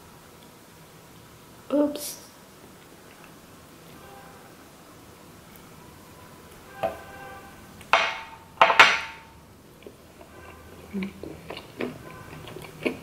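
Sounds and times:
soft wet chewing: 2.6 - 4.0, 5.4 - 5.7, 9.6 - 13.0.

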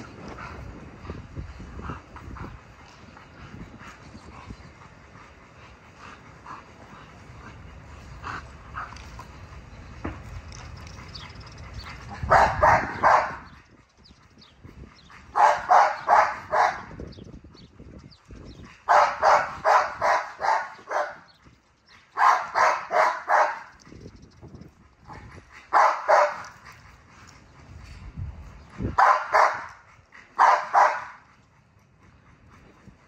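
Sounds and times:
dog barking: 12.2 - 13.5, 15.4 - 16.9, 18.9 - 21.2, 22.2 - 23.7, 25.7 - 26.4, 29.0 - 29.7, 30.4 - 31.2.

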